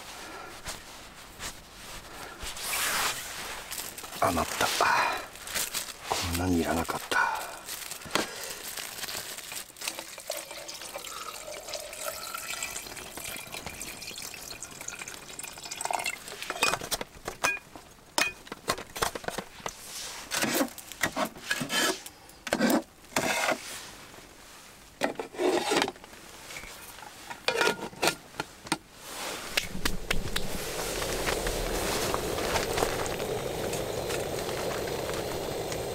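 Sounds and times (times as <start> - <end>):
faint liquid sounds: 9.6 - 16.6
metal pot and utensils clinking: 14.9 - 18.4, 27.4 - 28.2.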